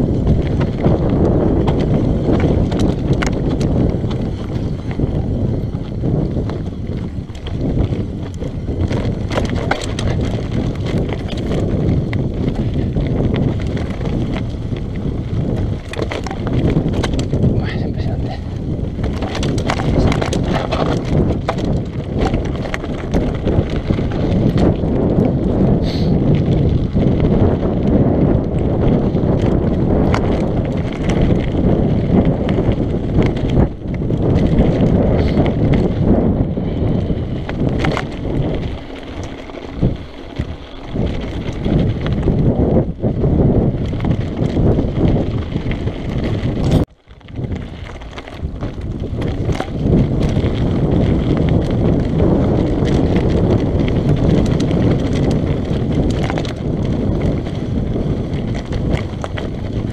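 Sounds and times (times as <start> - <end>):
tyres crunching on gravel: 0.0 - 25.6, 26.3 - 59.9
bike rattling over bumps: 0.0 - 59.9
wind buffeting microphone: 0.0 - 59.9.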